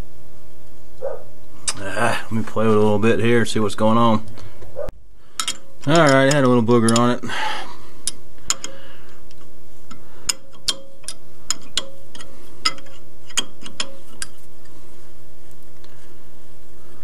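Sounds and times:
steady low hum: 0:00.0 - 0:17.0
sharp metallic clicks: 0:05.4 - 0:07.2, 0:08.0 - 0:14.4.

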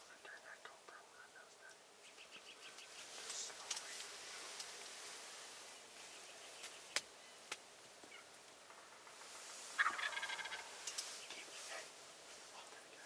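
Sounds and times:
faint sharp clicks: 0:00.2 - 0:04.9, 0:06.6 - 0:08.2, 0:10.8 - 0:11.5
turkey gobbling: 0:08.0 - 0:11.9.

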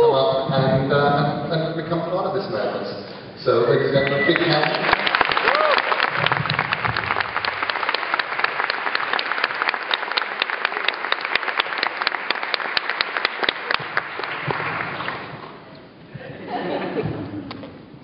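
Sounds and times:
audience applauding: 0:04.0 - 0:15.6.

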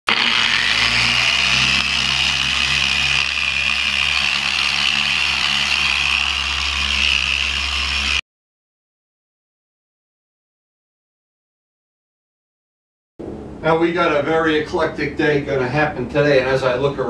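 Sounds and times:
electric polisher whining: 0:00.1 - 0:08.2.

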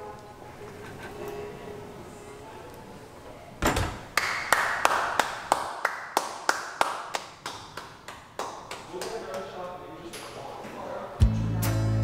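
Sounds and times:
hand clapping: 0:04.2 - 0:09.6.

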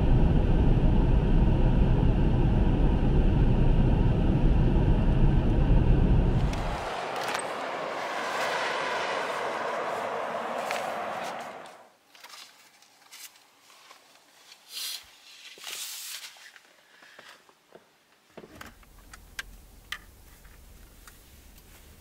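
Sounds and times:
low hum: 0:00.0 - 0:11.9
loud rushing noise: 0:03.8 - 0:11.9.

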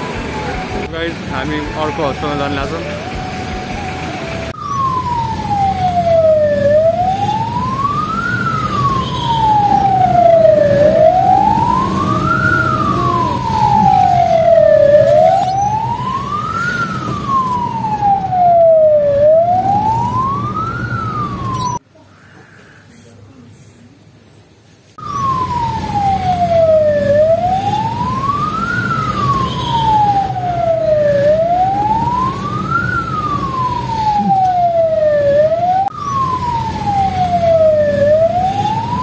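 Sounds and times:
ambulance wail siren: 0:00.0 - 0:21.8, 0:25.0 - 0:39.0
low vehicle rumble: 0:00.0 - 0:21.8.

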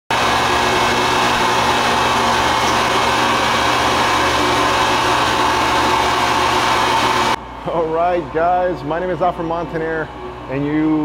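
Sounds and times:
electric grinder whirring: 0:00.1 - 0:07.4.

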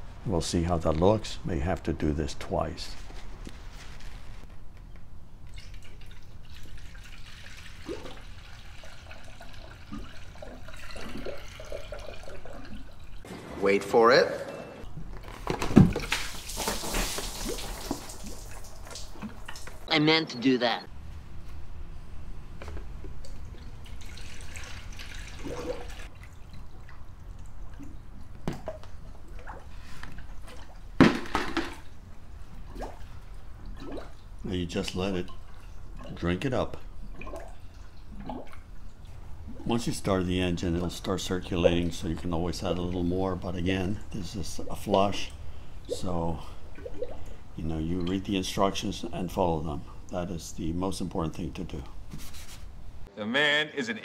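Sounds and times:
water pouring into funnel: 0:05.5 - 0:13.2, 0:16.1 - 0:19.7, 0:23.3 - 0:27.8
water pouring and splashing: 0:05.5 - 0:13.3, 0:15.8 - 0:19.9, 0:23.1 - 0:48.8
water gurgling: 0:05.9 - 0:13.3, 0:23.4 - 0:29.7, 0:32.6 - 0:48.8.

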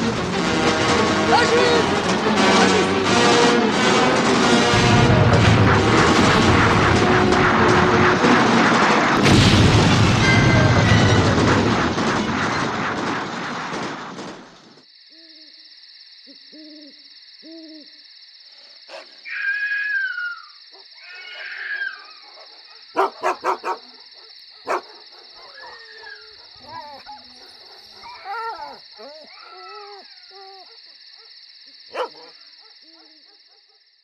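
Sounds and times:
dense film soundtrack din: 0:00.0 - 0:14.7
owl hooting: 0:16.3 - 0:18.0, 0:19.3 - 0:22.2
dog whining: 0:25.4 - 0:30.8.

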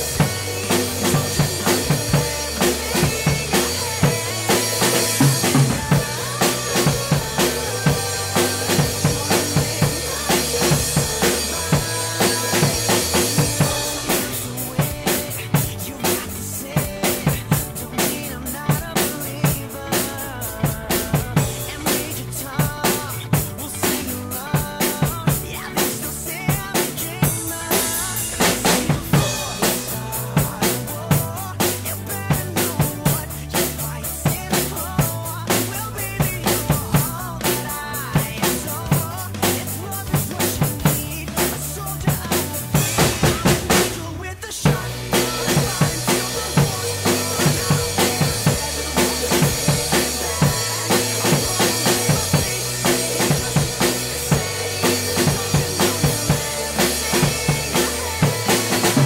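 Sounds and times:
drum kit playing rock beat: 0:00.0 - 0:59.0
rock backing track: 0:00.0 - 0:59.0.

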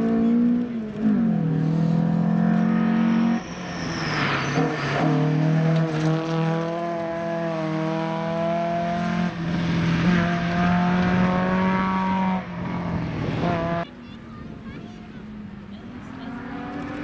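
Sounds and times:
rally car engine at high revs: 0:00.0 - 0:13.9, 0:15.8 - 0:17.0.

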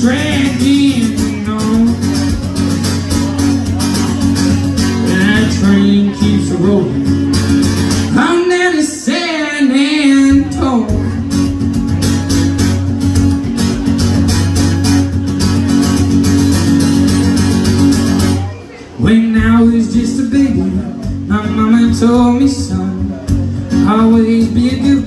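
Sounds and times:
man singing: 0:00.0 - 0:07.3, 0:08.0 - 0:11.6, 0:19.0 - 0:25.0
acoustic guitar strumming: 0:00.0 - 0:25.0.

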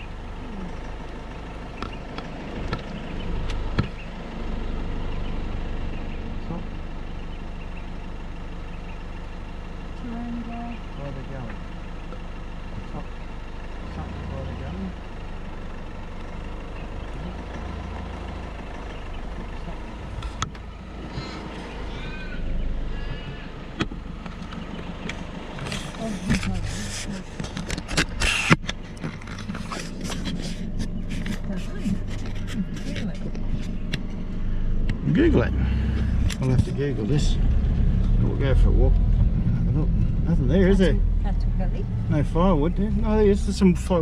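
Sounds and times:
low engine hum: 0:00.0 - 0:44.0
sharp clicks and knocks: 0:23.8 - 0:35.0.

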